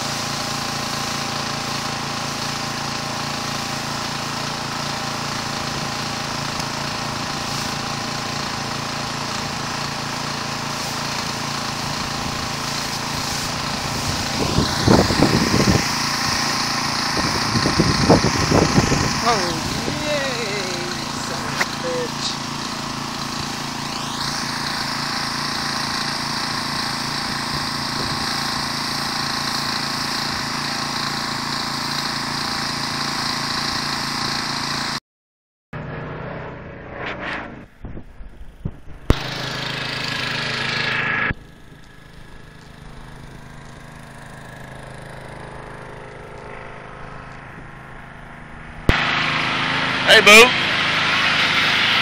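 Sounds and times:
high-pressure water spray hissing: 0:00.0 - 0:35.0, 0:39.1 - 0:47.0, 0:48.9 - 0:52.0
pressure washer engine running: 0:00.0 - 0:35.0, 0:38.3 - 0:52.0
rush of noise: 0:35.8 - 0:39.3, 0:45.7 - 0:52.0.

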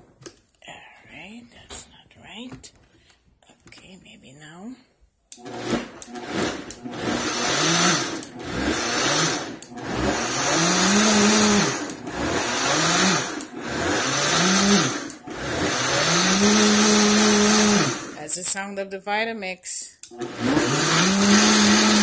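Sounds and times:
blender motor surging: 0:05.4 - 0:18.2, 0:20.1 - 0:22.0.

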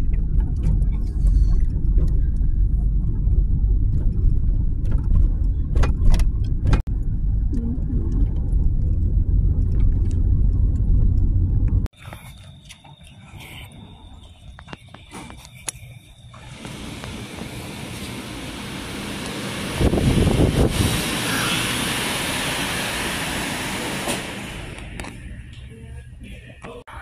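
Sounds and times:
engine and tyres rumbling: 0:00.0 - 0:13.0, 0:13.7 - 0:26.2.

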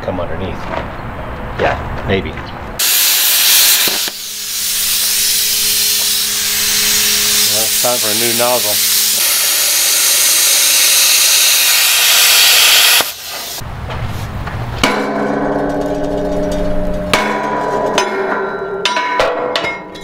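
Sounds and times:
hammer blows on steel: 0:02.8 - 0:13.6
plasma cutter hissing: 0:02.8 - 0:13.6.

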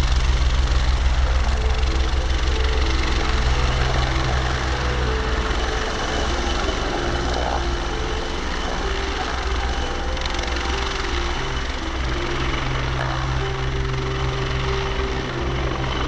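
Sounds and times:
turbine whine: 0:00.0 - 0:16.0.

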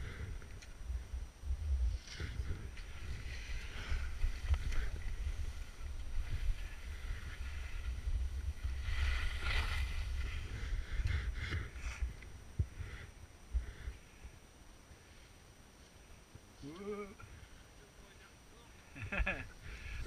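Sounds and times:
skis sliding on snow: 0:01.9 - 0:11.0.

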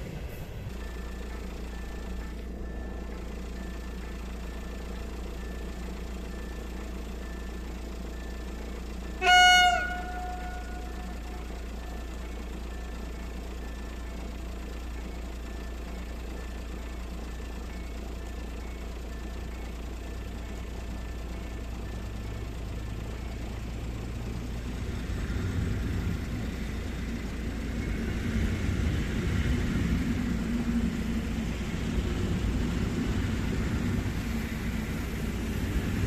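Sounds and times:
low wind rumble: 0:00.0 - 0:01.9, 0:23.4 - 0:36.0
high train horn blast: 0:09.1 - 0:11.6.

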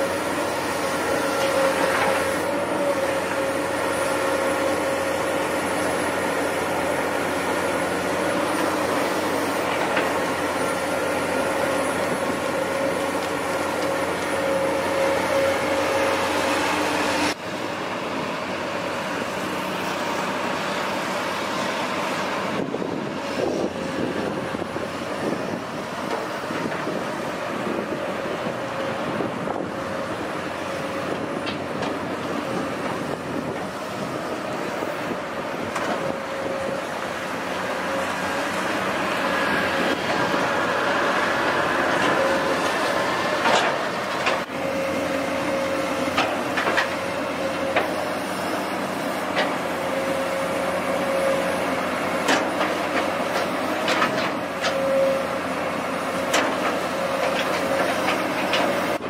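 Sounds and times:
excavator engine and hydraulics: 0:00.0 - 0:59.0.

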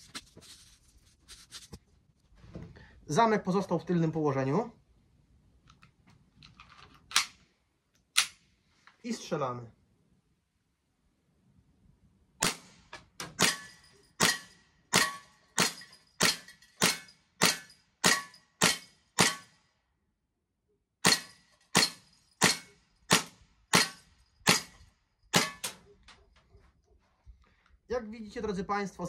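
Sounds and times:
air pistol shots cracking: 0:12.4 - 0:19.5, 0:21.0 - 0:25.8.

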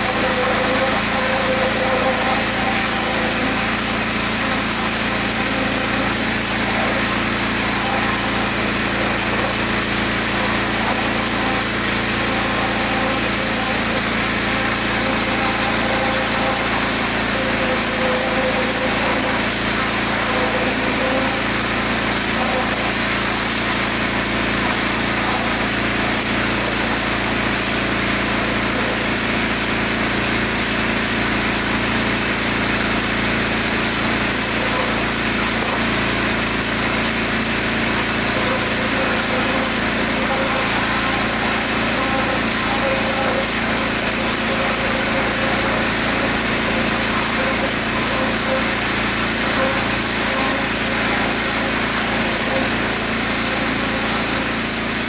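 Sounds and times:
small machine motor running: 0:00.0 - 0:55.0.

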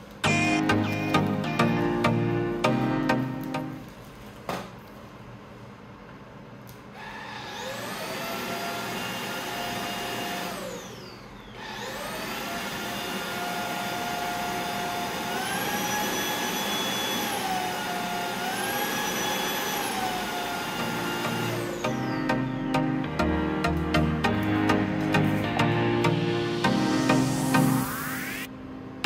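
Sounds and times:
stick vacuum motor whining: 0:07.0 - 0:22.9.

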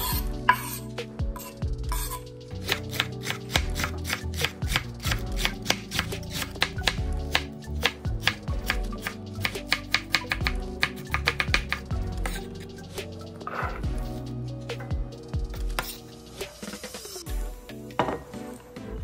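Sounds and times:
background music: 0:00.0 - 0:19.0
knife chopping on wooden board: 0:02.6 - 0:12.4.

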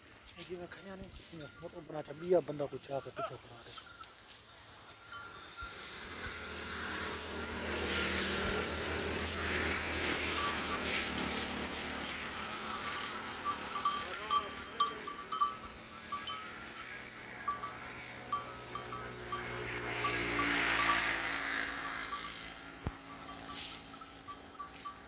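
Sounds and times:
rustle of branches: 0:00.0 - 0:25.0
short high ringing ticks: 0:10.0 - 0:25.0.

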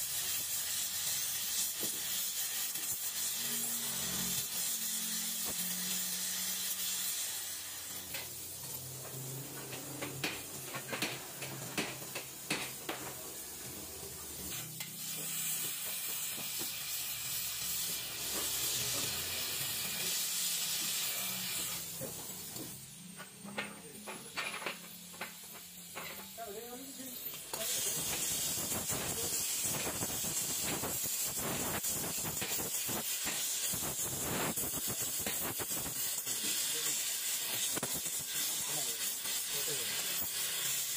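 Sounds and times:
welding torch flame hissing: 0:00.0 - 0:40.9.

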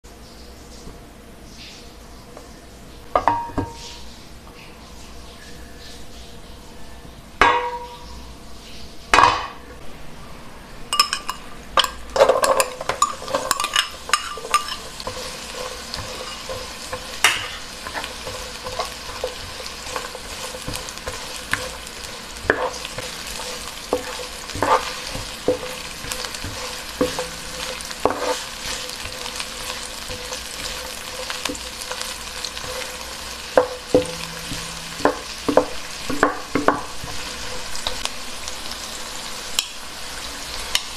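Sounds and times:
onions sizzling in oil: 0:02.8 - 0:06.7, 0:10.9 - 0:40.9
wooden spatula scraping pan: 0:12.2 - 0:38.0.

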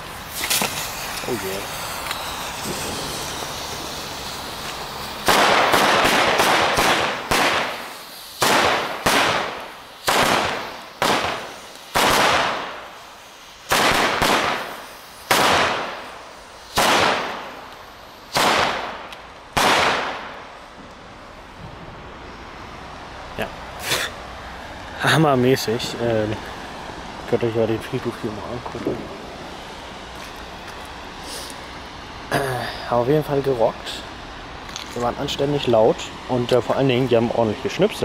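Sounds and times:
firecrackers banging: 0:00.0 - 0:22.1
fuse hissing: 0:00.0 - 0:38.0.

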